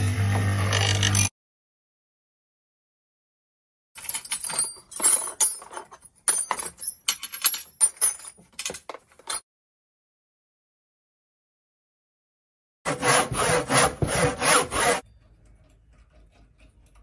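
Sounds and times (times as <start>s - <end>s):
hand tools clinking: 4.0s - 9.4s.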